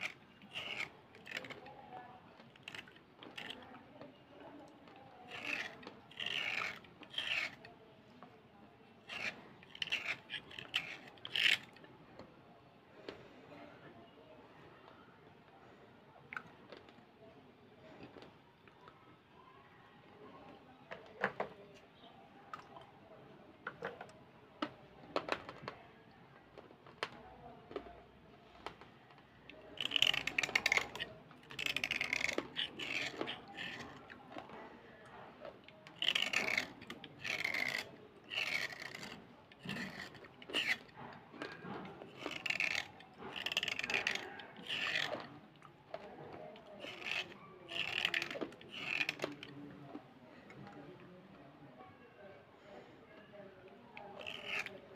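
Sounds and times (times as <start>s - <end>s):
blade scraping pencil: 0.0s - 7.8s, 8.8s - 11.9s, 29.6s - 49.8s, 53.8s - 54.9s.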